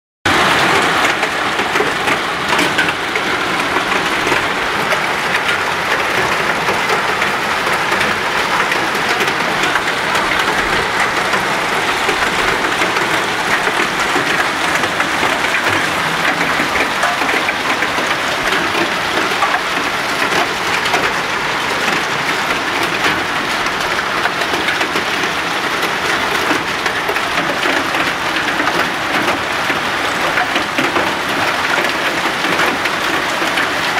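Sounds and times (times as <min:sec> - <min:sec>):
hail and rain falling: 0:00.3 - 0:33.9.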